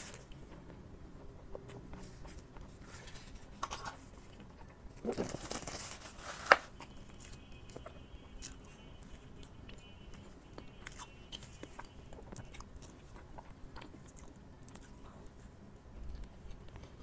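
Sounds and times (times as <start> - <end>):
plastic packaging crinkling: 5.0 - 6.7.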